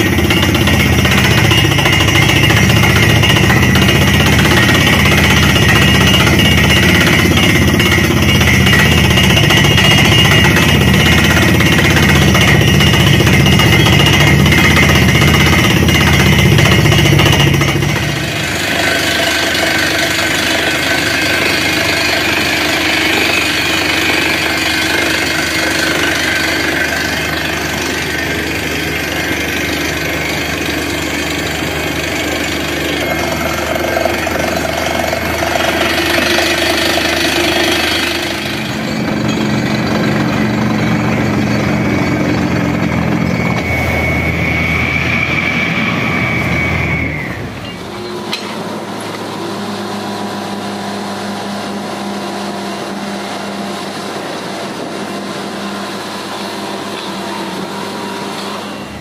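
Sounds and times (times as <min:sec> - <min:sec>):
drilling rig hammering rock: 0:00.0 - 0:50.0, 0:50.7 - 0:59.0
machine running steadily: 0:00.0 - 0:59.0.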